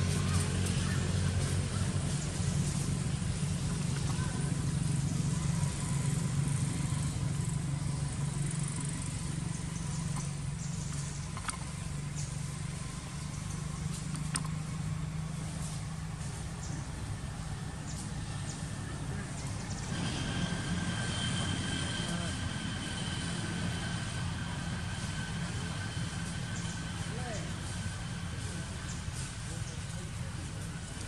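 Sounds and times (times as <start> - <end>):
low engine hum: 0.0 - 31.0
faint clicks: 13.9 - 14.6.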